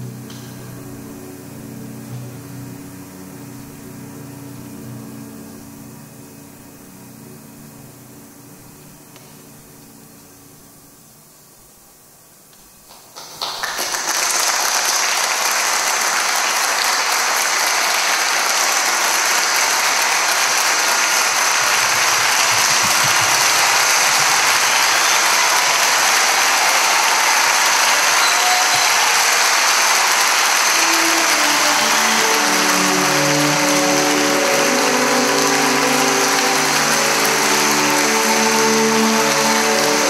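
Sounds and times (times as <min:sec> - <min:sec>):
audience applause: 0:12.8 - 0:40.0.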